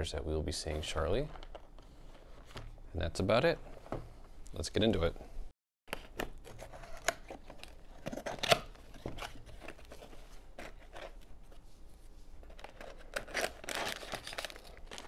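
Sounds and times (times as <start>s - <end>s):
foil bags crinkling: 12.6s - 15.0s.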